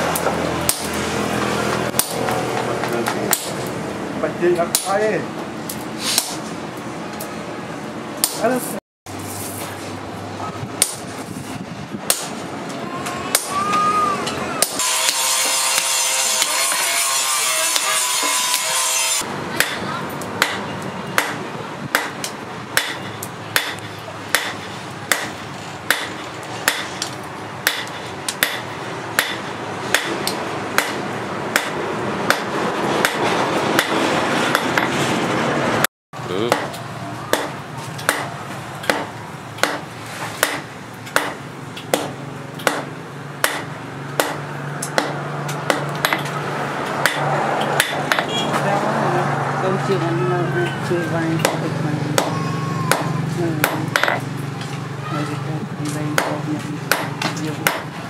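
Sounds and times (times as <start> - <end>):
hammer striking hot steel on anvil: 0.1 - 1.0, 1.9 - 3.7, 4.6 - 5.0, 5.7 - 6.4, 8.2 - 8.5, 10.8 - 11.1, 12.1 - 12.4, 13.3 - 13.6, 14.6 - 34.9, 36.5 - 46.3, 46.9 - 48.4, 56.2 - 57.9.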